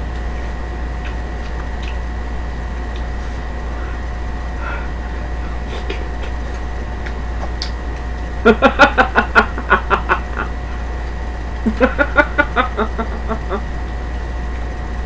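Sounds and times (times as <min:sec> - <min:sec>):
woman laughing loudly: 0:08.4 - 0:10.6, 0:11.6 - 0:13.8.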